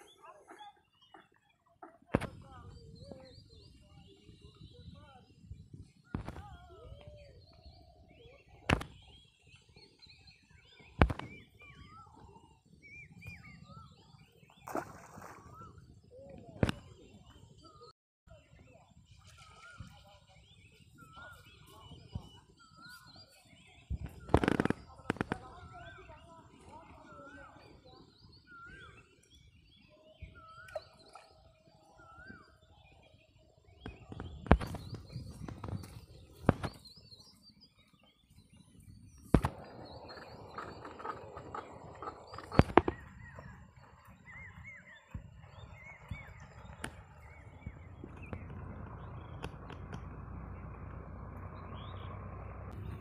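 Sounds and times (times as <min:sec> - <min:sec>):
small birds chirping: 0:00.0 - 0:53.0
high bird chirps: 0:32.0 - 0:50.0.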